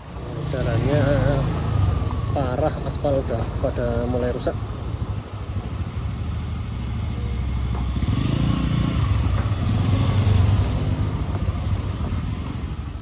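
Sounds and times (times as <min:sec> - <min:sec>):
road noise: 0:00.0 - 0:13.0
motorcycle engine running: 0:05.1 - 0:13.0.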